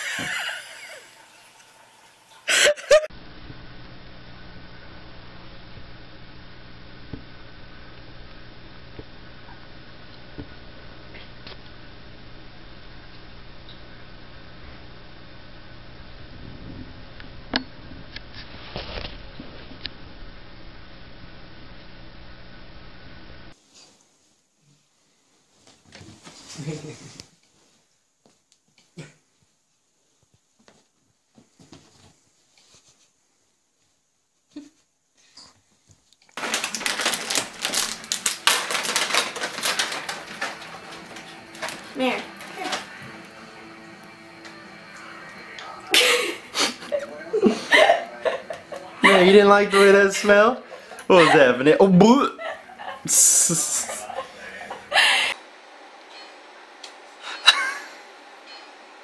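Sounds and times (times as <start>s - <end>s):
low room hum: 0.0s - 59.0s
packet crinkling: 36.4s - 42.9s.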